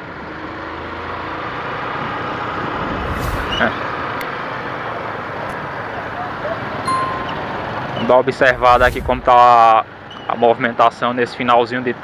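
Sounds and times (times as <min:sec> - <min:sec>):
brief hiss: 0:03.0 - 0:03.7, 0:08.5 - 0:09.7.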